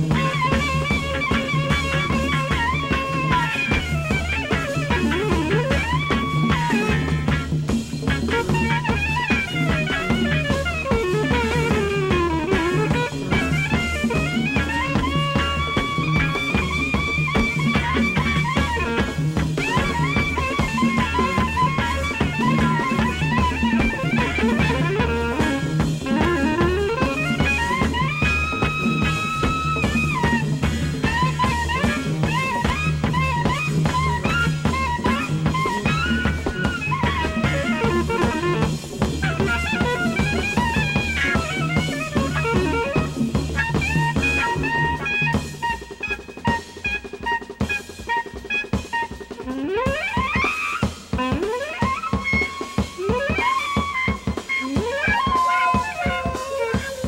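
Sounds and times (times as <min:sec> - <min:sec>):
electric bass line: 0:00.0 - 0:45.3
drum kit: 0:00.0 - 0:57.0
electric guitar: 0:00.0 - 0:57.0
soprano saxophone soloing: 0:00.0 - 0:57.0.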